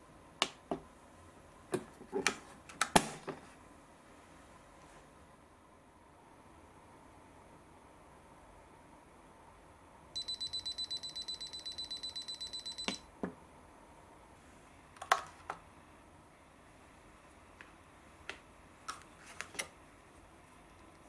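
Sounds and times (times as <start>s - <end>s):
rapid high-pitched timer beeping: 10.2s - 13.0s.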